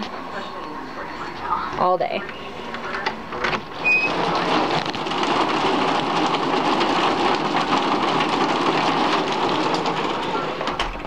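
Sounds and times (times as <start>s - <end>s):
heavy rain falling: 3.8s - 11.0s.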